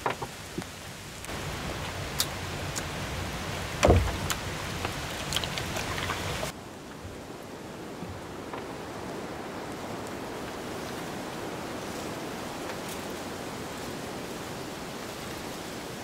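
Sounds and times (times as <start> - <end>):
rain falling: 0.0 - 16.0
drip ticks: 2.2 - 2.9.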